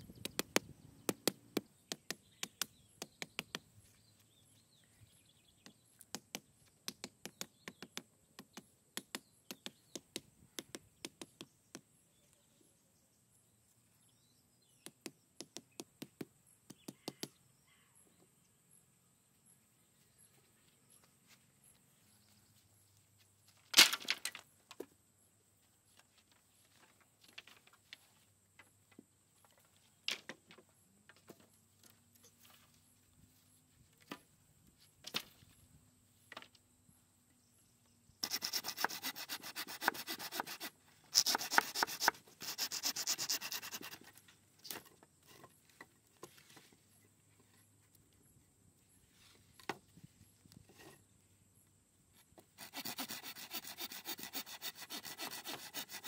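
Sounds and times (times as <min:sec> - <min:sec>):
wooden poles clattering: 0:23.5 - 0:24.9
tool scraping wood: 0:38.2 - 0:45.6, 0:52.5 - 0:56.0.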